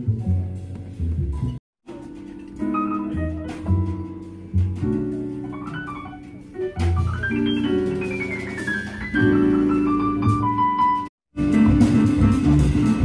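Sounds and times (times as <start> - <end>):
jazz piano playing: 0.0 - 13.0.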